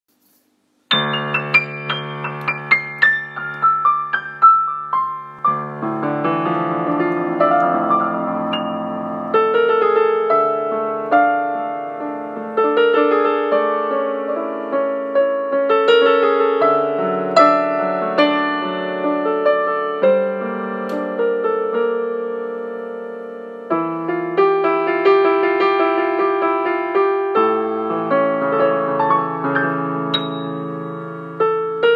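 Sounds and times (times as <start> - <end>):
solo piano music: 0.9 - 31.9.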